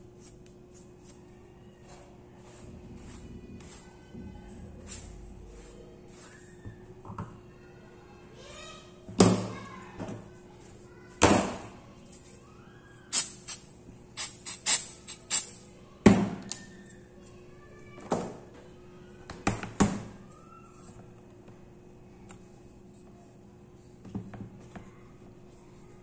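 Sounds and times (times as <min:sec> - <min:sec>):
compressed air blasts: 0:13.1 - 0:13.6, 0:14.2 - 0:15.6.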